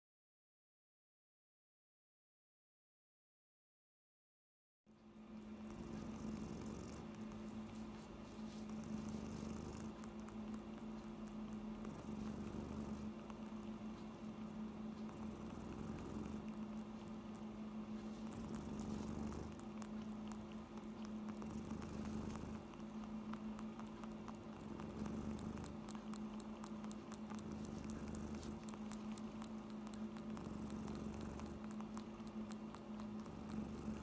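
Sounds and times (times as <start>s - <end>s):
kitten purring: 5.3s - 34.0s.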